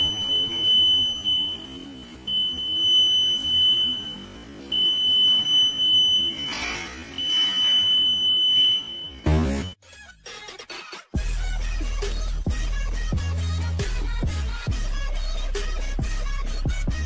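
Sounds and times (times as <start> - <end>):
high-pitched alarm buzzer tone: 0.0 - 9.8.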